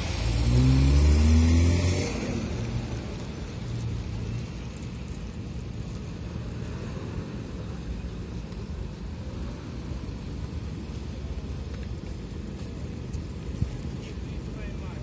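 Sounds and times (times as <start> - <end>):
car engine driving past: 0.0 - 3.4.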